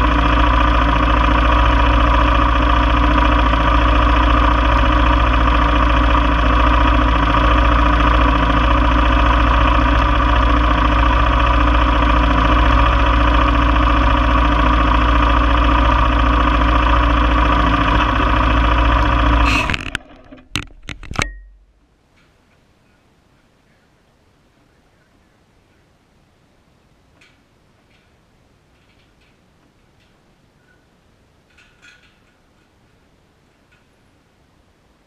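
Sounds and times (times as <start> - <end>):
single-cylinder engine idling: 0.0 - 20.0.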